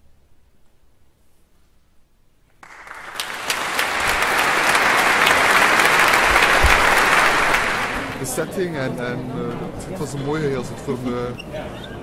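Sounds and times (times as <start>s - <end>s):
large audience applauding: 2.6s - 8.4s.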